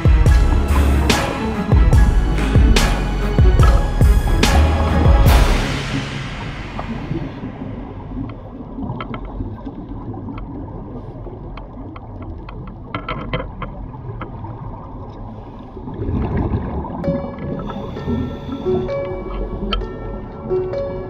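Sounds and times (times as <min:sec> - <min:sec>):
underwater rumbling wash: 0:00.0 - 0:21.0
scuba exhaust bubbles gurgling: 0:13.5 - 0:19.9.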